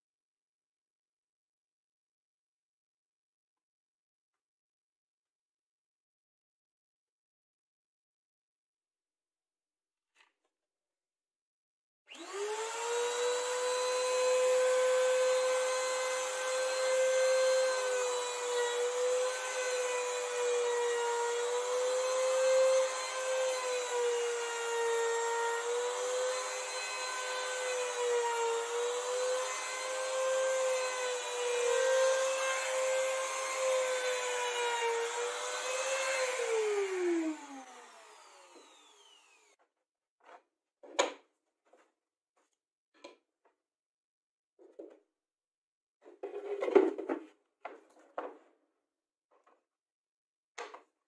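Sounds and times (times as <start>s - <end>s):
router whining: 12.1s - 39.6s.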